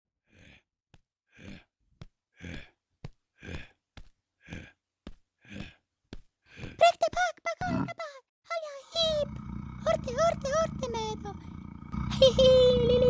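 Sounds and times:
cartoon bear huffing: 0:09.0 - 0:13.0.

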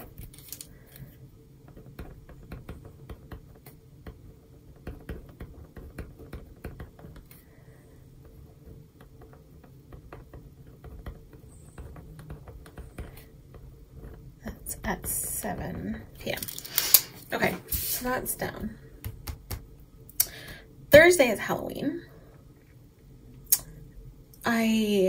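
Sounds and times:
pen scratching on paper: 0:01.7 - 0:07.4.

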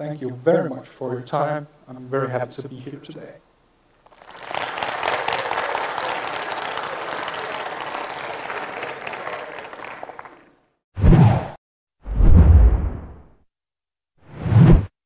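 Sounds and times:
audience applauding: 0:04.0 - 0:10.6
deep whoosh sound effect: 0:12.1 - 0:13.2.

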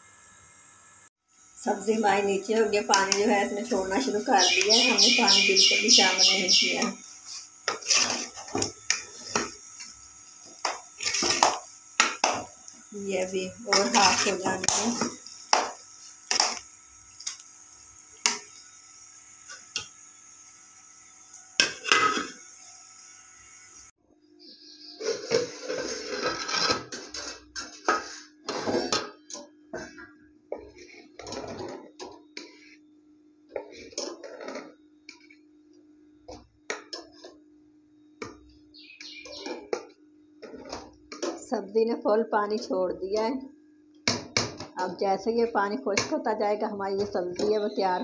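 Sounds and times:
ladle scraping metal pot: 0:02.9 - 0:10.0, 0:10.6 - 0:12.4, 0:13.6 - 0:15.7, 0:25.0 - 0:29.2, 0:30.5 - 0:32.8.

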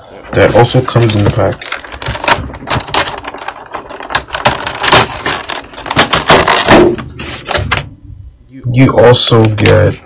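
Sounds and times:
plastic blister tray crackling: 0:00.2 - 0:07.9.

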